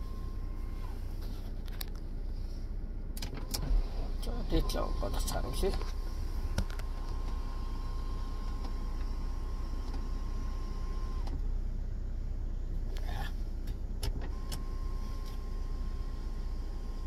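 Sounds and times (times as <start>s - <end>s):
electric motor hum: 3.6s - 11.4s.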